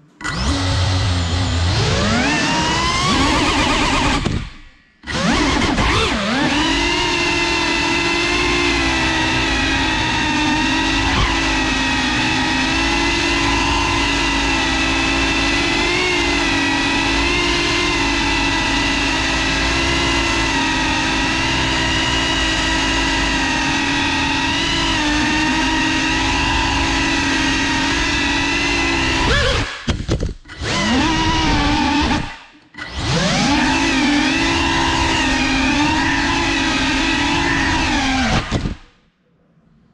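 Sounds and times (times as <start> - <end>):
drone motors whining: 0.0 - 39.0.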